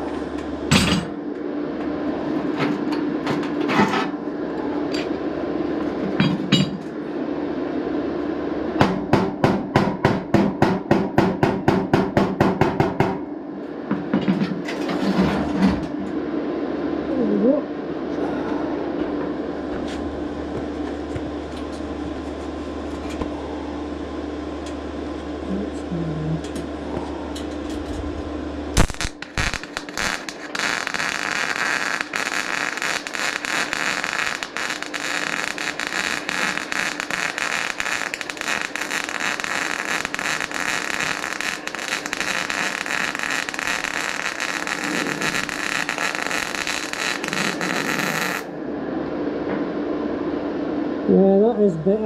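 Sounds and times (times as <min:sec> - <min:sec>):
low hum: 0:00.0 - 0:11.7, 0:12.8 - 0:52.0
welder arc crackling: 0:26.4 - 0:48.5.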